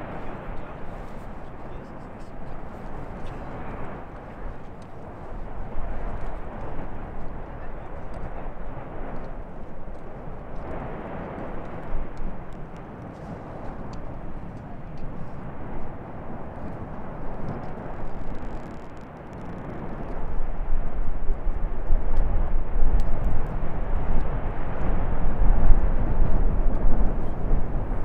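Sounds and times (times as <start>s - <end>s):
lava fountain rushing rumble: 0.0s - 28.0s
faint clicks: 9.2s - 16.0s, 16.6s - 20.3s.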